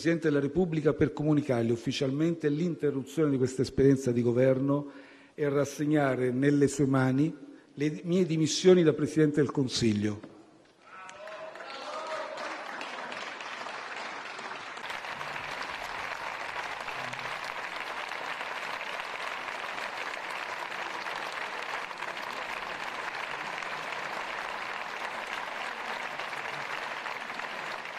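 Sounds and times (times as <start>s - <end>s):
many hands clapping: 10.9s - 27.9s.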